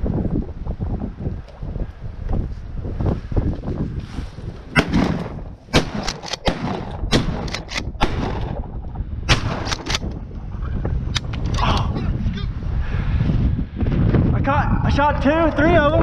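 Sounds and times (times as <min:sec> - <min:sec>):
low wind rumble: 0:00.0 - 0:16.0
shotgun blasts: 0:04.8 - 0:08.7, 0:09.3 - 0:10.1.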